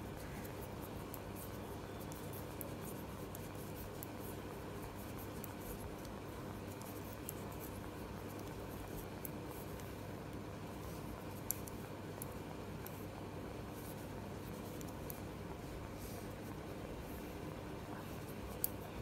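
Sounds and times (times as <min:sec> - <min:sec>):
steady low hum: 0:00.0 - 0:19.0
knitting needles clicking: 0:11.4 - 0:13.0, 0:18.5 - 0:18.8.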